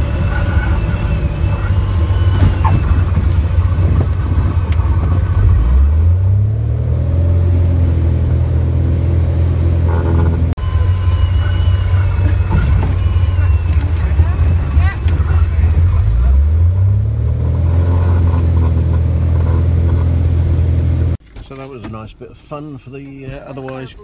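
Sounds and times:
propeller plane engine from cabin: 0.0 - 5.5, 7.4 - 16.1.

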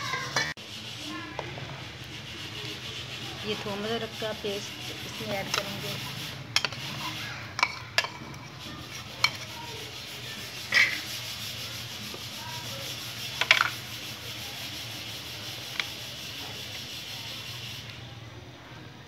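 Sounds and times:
gas burner hissing: 0.0 - 18.4
metal spoon clinking on bowl: 7.6 - 8.5.

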